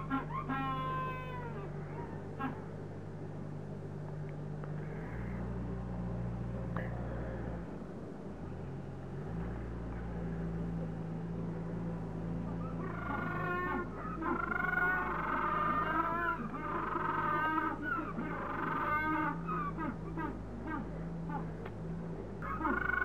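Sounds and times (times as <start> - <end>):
penguins calling: 0.0 - 2.7, 12.5 - 21.6, 22.4 - 23.0
low mechanical hum: 0.0 - 23.0.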